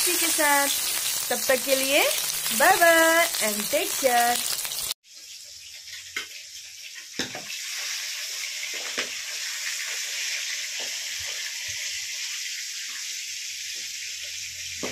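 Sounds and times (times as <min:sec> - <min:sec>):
oil crackles and pops: 0:00.0 - 0:11.8
fish frying in hot oil: 0:00.0 - 0:14.9.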